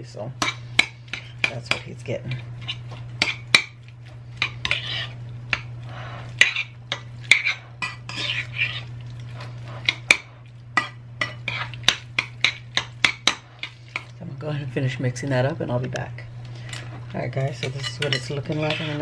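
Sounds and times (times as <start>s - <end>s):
wet stirring: 0.4s - 14.3s, 16.4s - 19.0s
fork clinking against ceramic bowl: 17.5s - 19.0s.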